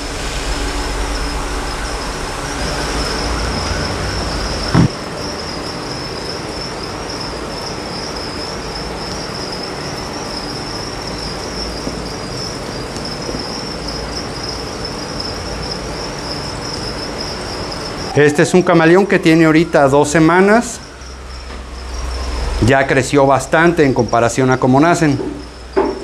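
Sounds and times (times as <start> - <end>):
crickets chirping: 0.0 - 26.0
short thump: 4.7 - 5.0.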